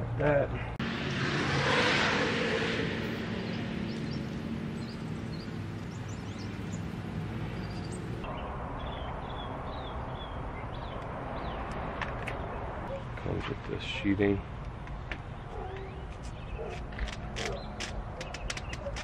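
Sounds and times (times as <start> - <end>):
passing engine rushing: 0.8 - 8.3
small birds chirping: 3.3 - 19.0.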